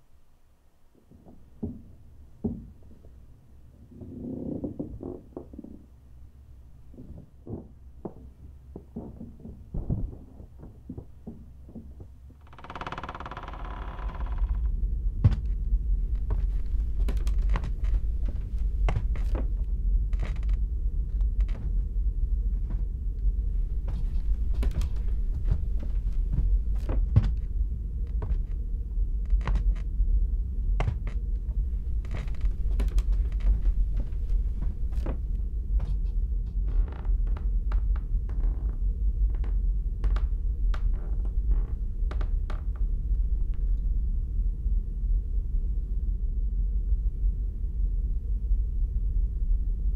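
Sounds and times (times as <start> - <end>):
short knocks and creaks: 1.0 - 3.2, 3.8 - 6.2, 6.8 - 21.9, 22.5 - 28.6, 29.2 - 29.9, 30.8 - 44.1
low rumbling drone: 2.0 - 49.9.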